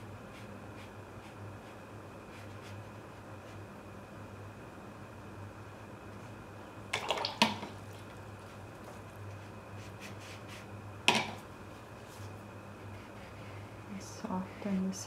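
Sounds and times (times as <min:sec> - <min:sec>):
steady low hum: 0:00.0 - 0:15.0
water splashing: 0:06.9 - 0:08.2.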